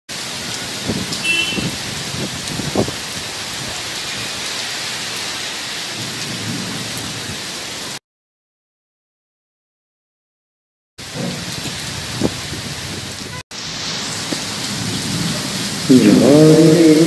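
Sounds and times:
heavy rain hissing: 0:00.1 - 0:08.0, 0:11.0 - 0:17.0
low thunder rumbles: 0:00.8 - 0:03.8, 0:05.9 - 0:07.4, 0:14.2 - 0:17.0.

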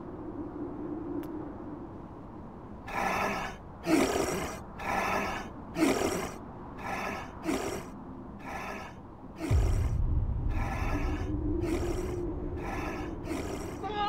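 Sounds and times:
cartoon seal snoring: 0:02.9 - 0:09.9, 0:10.5 - 0:13.8.

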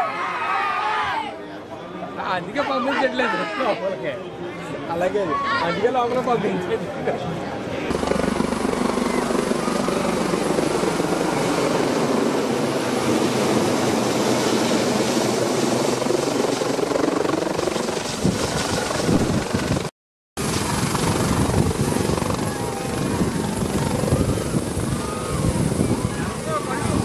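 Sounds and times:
helicopter rotor and engine: 0:07.5 - 0:27.0.

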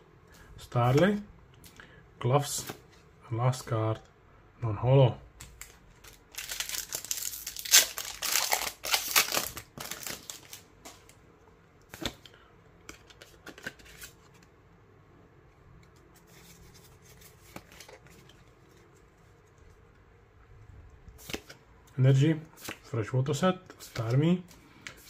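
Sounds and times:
cards clicking and rustling: 0:05.4 - 0:11.1, 0:11.9 - 0:14.5, 0:15.8 - 0:19.5, 0:21.2 - 0:21.6, 0:23.7 - 0:25.0
foil wrapper tearing and crinkling: 0:05.6 - 0:10.6.

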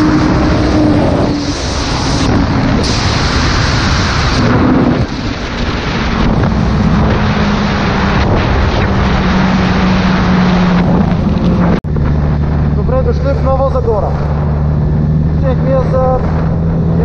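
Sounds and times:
motorcycle engine running: 0:00.0 - 0:17.0
wind buffeting on microphone: 0:00.0 - 0:17.0.

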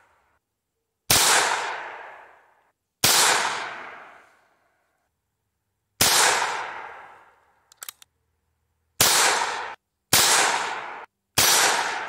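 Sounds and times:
pistol gunshots: 0:01.1 - 0:02.2, 0:03.0 - 0:04.2, 0:06.0 - 0:07.1, 0:09.0 - 0:12.0
faint clicks: 0:07.7 - 0:08.1.

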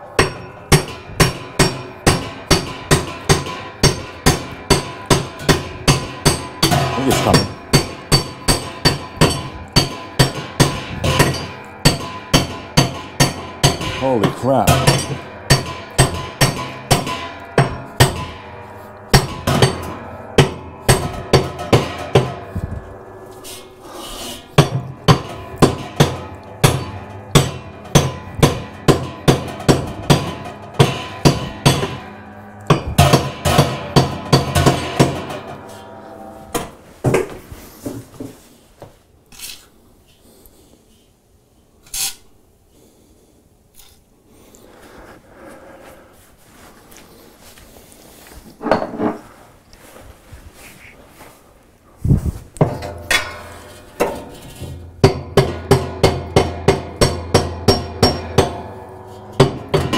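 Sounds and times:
hammer striking a wrench: 0:00.2 - 0:22.7, 0:24.3 - 0:37.3, 0:52.6 - 0:59.9.

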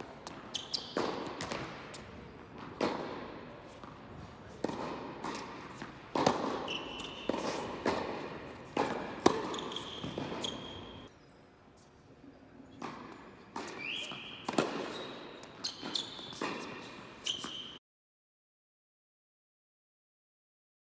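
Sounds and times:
racket hitting tennis ball: 0:00.0 - 0:11.1, 0:12.8 - 0:17.7
tennis ball bouncing: 0:00.0 - 0:11.1, 0:12.8 - 0:17.6
sneakers squeaking on court: 0:00.0 - 0:11.4, 0:12.6 - 0:17.8.

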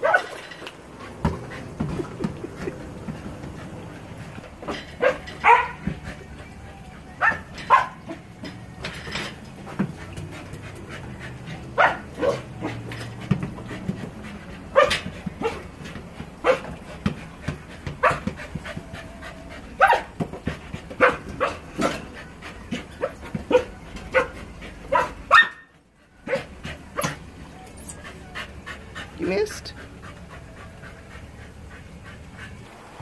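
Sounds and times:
dog barking: 0:00.0 - 0:00.4, 0:05.0 - 0:05.9, 0:07.2 - 0:08.2, 0:11.8 - 0:12.8, 0:14.7 - 0:15.6, 0:16.4 - 0:16.7, 0:18.0 - 0:18.3, 0:19.8 - 0:20.1, 0:21.0 - 0:21.9, 0:23.0 - 0:25.7
dog panting: 0:00.9 - 0:25.4, 0:26.0 - 0:32.8.

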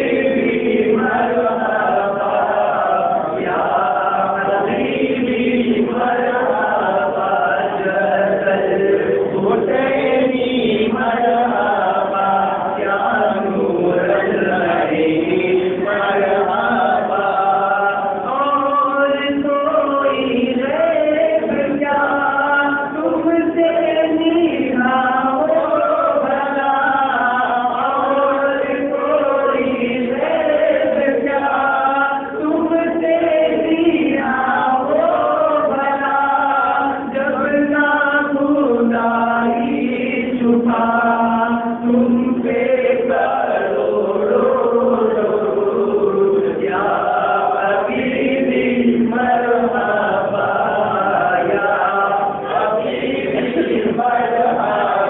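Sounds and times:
man singing into a microphone: 0:00.0 - 0:55.0
men singing along: 0:00.0 - 0:55.0.

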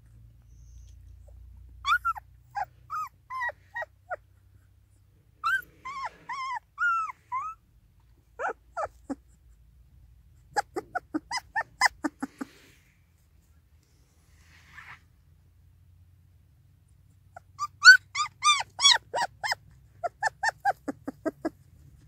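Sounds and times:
puppies whimpering: 0:00.6 - 0:04.3, 0:05.4 - 0:07.6, 0:08.3 - 0:09.4, 0:10.5 - 0:12.7, 0:17.4 - 0:21.6.

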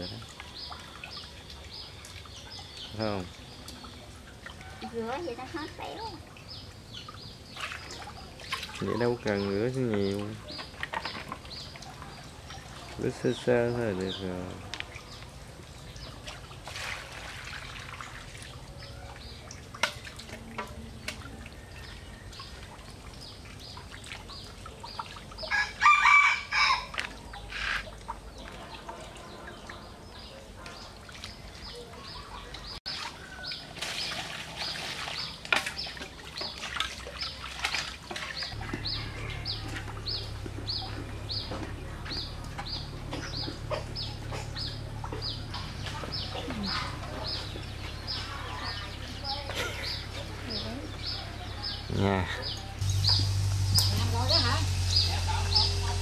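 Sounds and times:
water sloshing in a basin: 0:00.0 - 0:56.0
rooster crowing: 0:25.5 - 0:27.0, 0:38.6 - 0:39.8.

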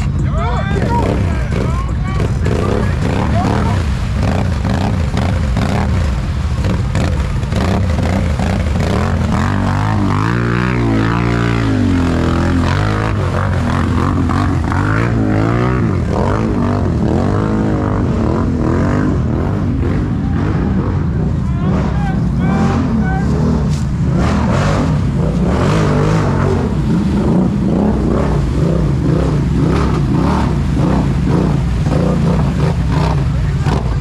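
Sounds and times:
atv engine revving: 0:00.0 - 0:34.0.

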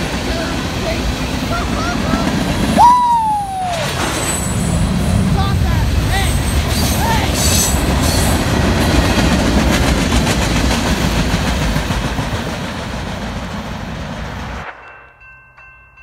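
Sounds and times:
wheels clicking over rail joints: 0:00.0 - 0:13.8
steel wheels rumbling on rail: 0:00.0 - 0:16.0.

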